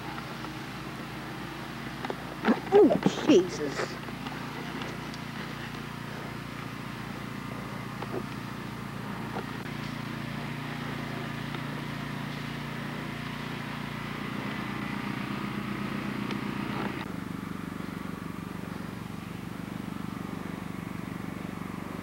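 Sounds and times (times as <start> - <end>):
low mechanical hum: 0.0 - 22.0.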